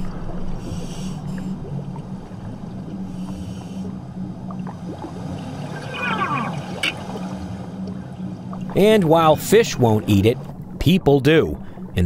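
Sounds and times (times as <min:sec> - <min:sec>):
underwater low hum: 0:00.0 - 0:12.0.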